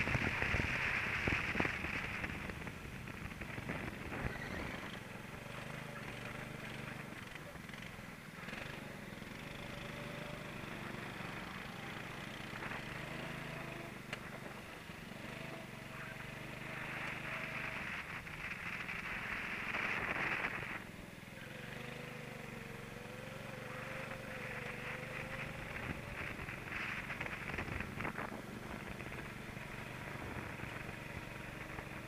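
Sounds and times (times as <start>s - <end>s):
wind rushing past microphone: 0.0s - 4.9s, 16.1s - 20.8s, 24.2s - 32.0s
kart engine running: 0.0s - 32.0s.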